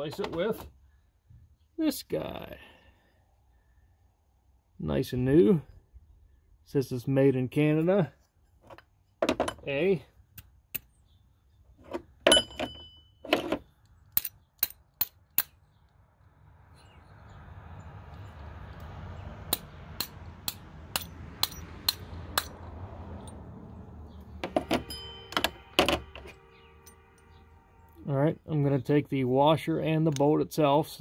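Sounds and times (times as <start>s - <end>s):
metal hardware clicks and clinks: 11.9s - 15.5s, 24.4s - 27.3s
ringing metallic clink: 12.3s - 13.3s, 21.0s - 22.0s, 24.4s - 27.4s.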